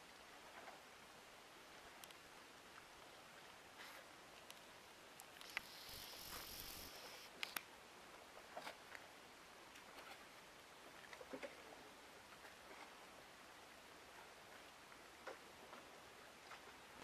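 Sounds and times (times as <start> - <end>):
faint outdoor hiss: 0.0 - 17.0
camera handling clicks and rustle: 7.4 - 7.7.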